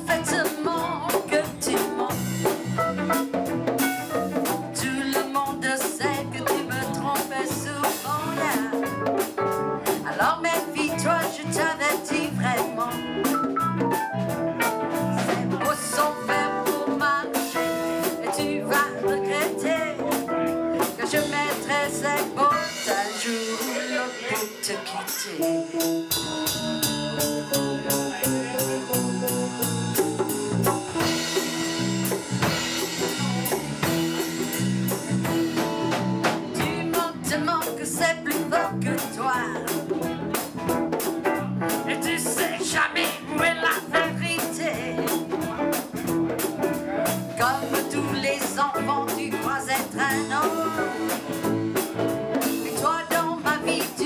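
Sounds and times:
woman singing: 0.0 - 2.6, 4.4 - 9.2, 9.8 - 13.4, 14.9 - 26.1, 36.2 - 40.1, 41.7 - 45.4, 47.3 - 54.0
bass guitar: 0.0 - 54.0
drum kit beats: 0.0 - 54.0
electric guitars: 0.0 - 54.0.

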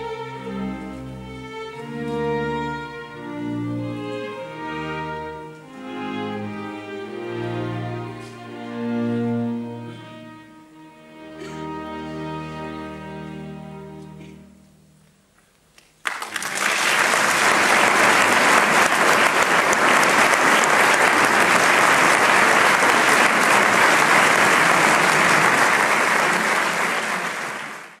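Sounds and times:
audience applauding: 15.8 - 28.0.

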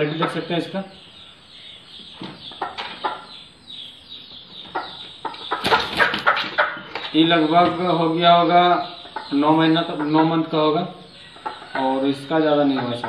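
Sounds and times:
chickens clucking: 0.0 - 13.0
wings flapping: 5.6 - 7.1.

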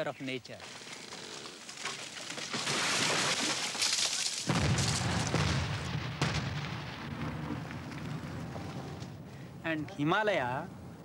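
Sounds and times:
sharp crack: 1.8 - 9.2
explosive blast crash: 4.5 - 9.1
deep rumbling boom: 4.5 - 9.4.

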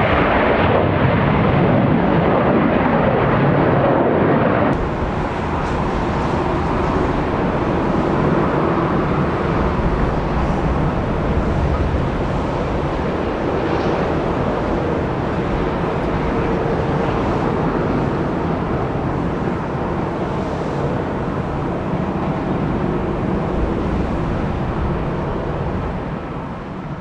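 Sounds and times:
jet engines: 0.0 - 27.0.

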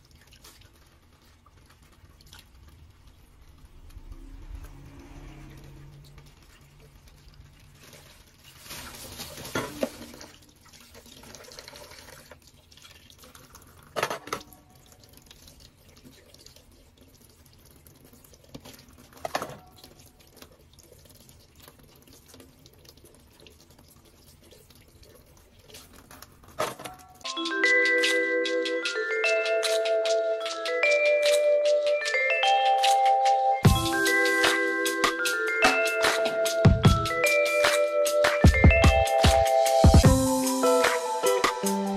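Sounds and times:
tap water running and dripping: 0.0 - 32.1.

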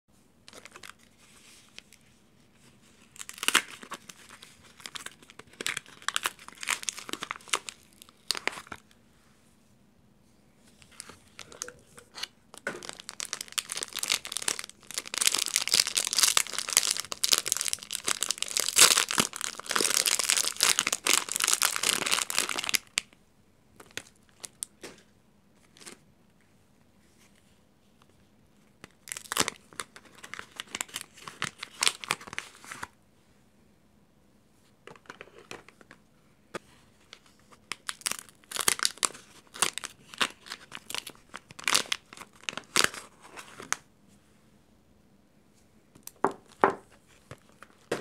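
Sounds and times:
plastic wrapper crinkling and tearing: 0.4 - 9.0, 10.8 - 23.2, 23.8 - 24.8, 25.6 - 26.0, 28.7 - 33.0, 37.0 - 43.9, 46.0 - 48.0.

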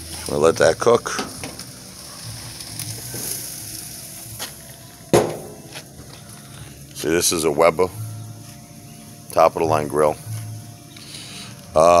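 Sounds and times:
meat sizzling on a grill: 0.0 - 12.0
sharp knock: 5.2 - 5.6.

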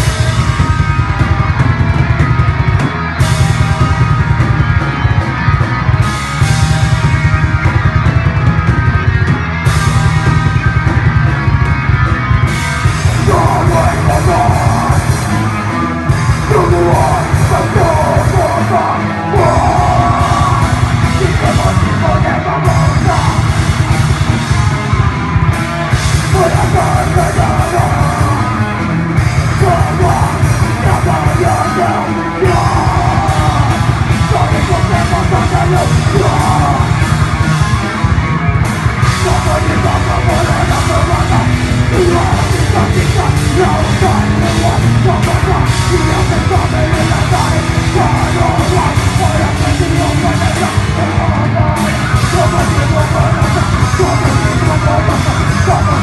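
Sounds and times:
distorted electric guitars: 0.0 - 56.0
pounding drum kit: 0.0 - 56.0
harsh shouted vocals: 13.0 - 38.2, 38.8 - 56.0.

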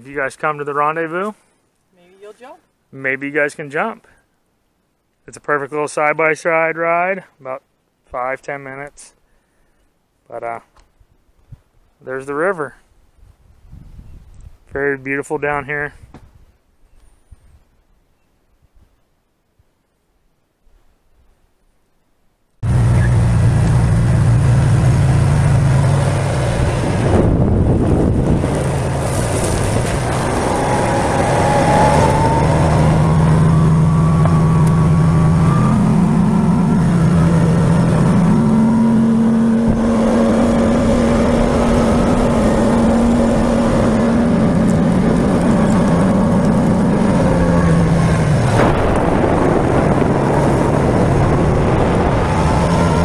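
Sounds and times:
steady rushing noise: 22.6 - 53.0
utility vehicle engine running: 22.6 - 53.0.

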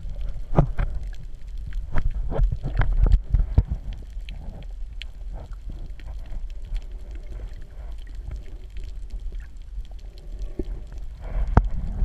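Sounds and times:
muffled underwater sloshing: 0.0 - 12.0.

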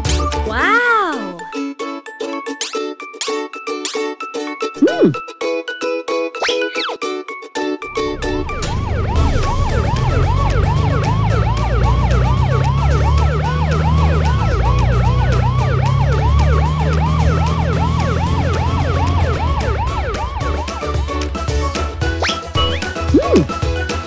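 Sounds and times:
ambulance siren whooping: 7.9 - 21.4, 22.6 - 23.6.

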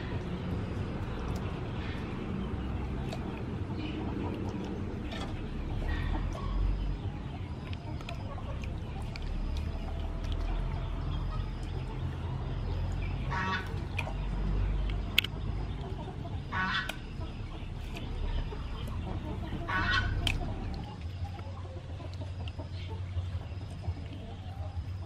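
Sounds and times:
chicken calling: 15.8 - 23.1.

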